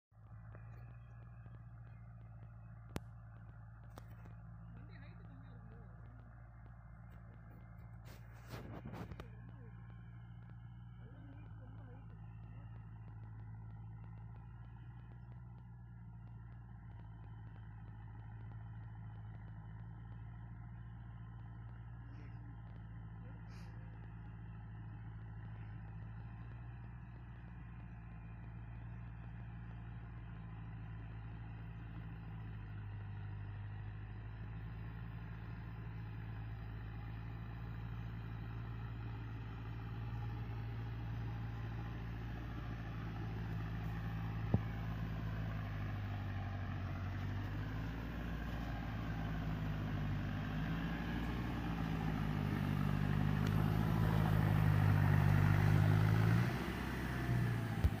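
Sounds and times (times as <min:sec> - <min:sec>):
tractor diesel engine running: 0:00.1 - 0:58.0.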